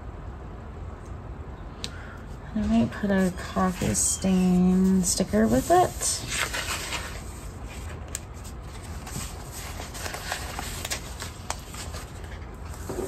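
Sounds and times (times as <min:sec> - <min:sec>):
sticker sheets rustling: 0:03.0 - 0:13.0.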